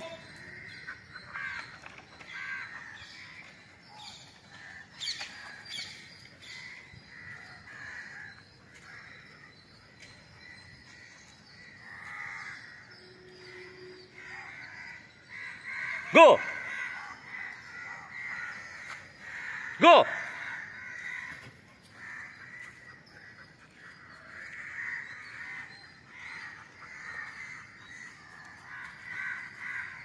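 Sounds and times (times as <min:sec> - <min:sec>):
crow-like caws: 0:00.0 - 0:03.1, 0:06.6 - 0:09.1, 0:14.1 - 0:23.2, 0:24.2 - 0:30.0.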